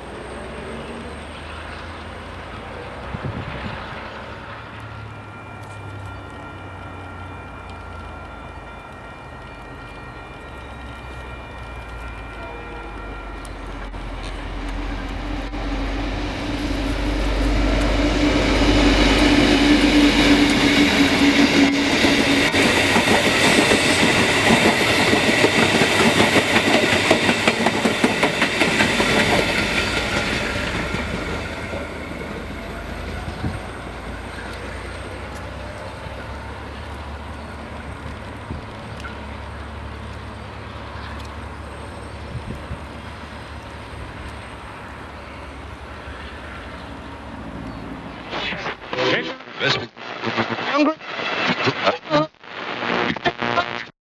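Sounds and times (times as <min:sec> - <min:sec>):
locomotive engine drone: 0:00.0 - 0:50.7
train wheels clicking over track: 0:10.8 - 0:37.0.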